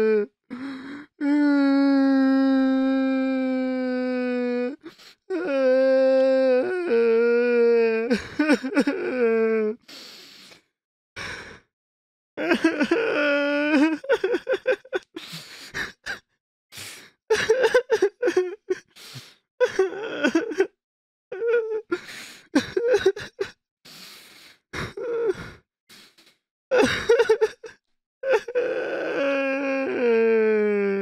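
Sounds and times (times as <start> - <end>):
person sobbing and groaning: 0.0 - 9.8, 12.4 - 16.2, 17.3 - 19.0, 19.6 - 20.7, 22.6 - 23.6, 24.8 - 25.6, 26.7 - 31.0
sharp gasping breaths: 9.8 - 11.7, 15.2 - 16.1, 16.7 - 17.2, 18.9 - 19.4, 22.0 - 22.5, 23.9 - 26.4.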